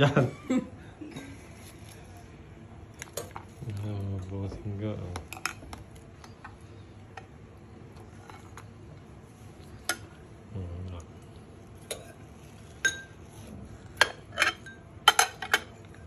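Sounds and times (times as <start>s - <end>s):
spoon clinking on ceramic bowl: 12.8s - 13.2s.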